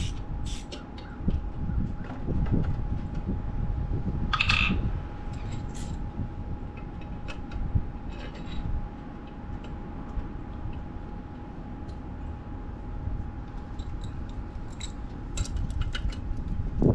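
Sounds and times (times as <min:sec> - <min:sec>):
metallic clicks of tools: 0:13.7 - 0:16.2.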